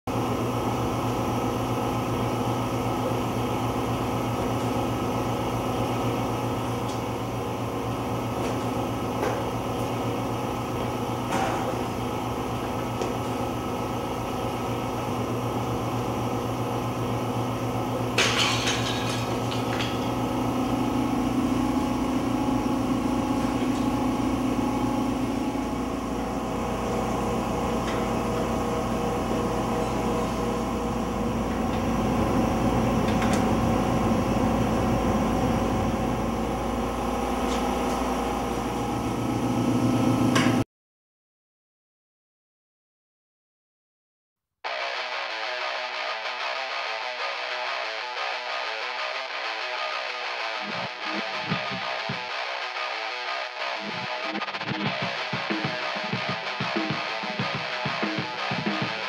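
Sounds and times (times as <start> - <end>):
low mechanical hum: 0.1 - 40.6.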